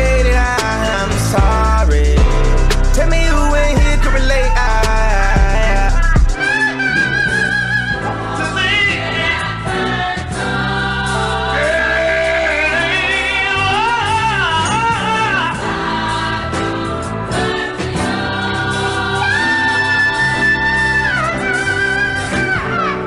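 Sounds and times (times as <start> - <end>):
held chords: 0.0 - 23.0
person singing with vibrato: 0.0 - 23.0.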